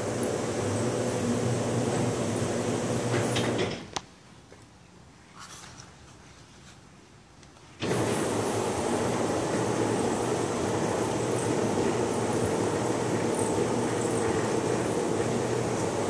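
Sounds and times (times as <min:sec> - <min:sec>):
electric motors humming: 0:00.0 - 0:03.6, 0:07.8 - 0:16.0.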